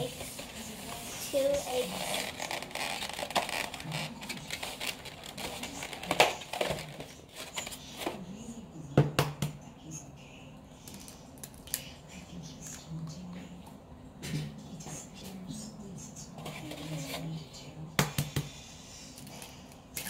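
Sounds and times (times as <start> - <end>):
egg carton crinkling: 1.4 - 7.8.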